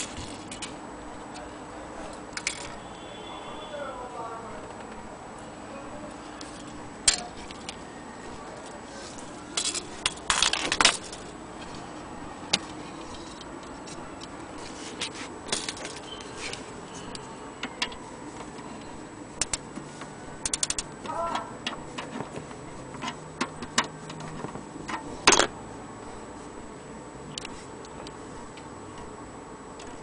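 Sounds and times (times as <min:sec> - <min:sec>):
mantel clock being handled: 0:00.0 - 0:02.8, 0:06.1 - 0:25.6
winding key clicking against case: 0:20.4 - 0:25.1.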